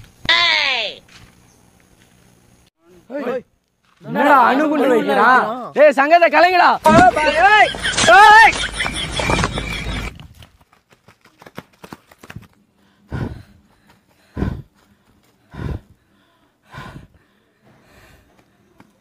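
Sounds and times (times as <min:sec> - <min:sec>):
footsteps running on dirt: 0:08.0 - 0:16.0
people panting: 0:12.1 - 0:18.9.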